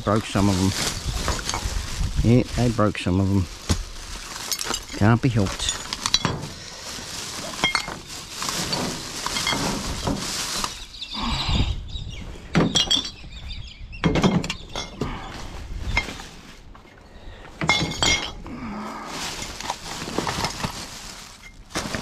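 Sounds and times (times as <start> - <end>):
rubbish bags rustling: 0.0 - 11.6, 14.3 - 22.0
glass bottles knocking: 4.5 - 6.5, 7.6 - 8.0, 8.6 - 10.1, 12.6 - 13.2, 14.0 - 15.0, 17.6 - 18.4.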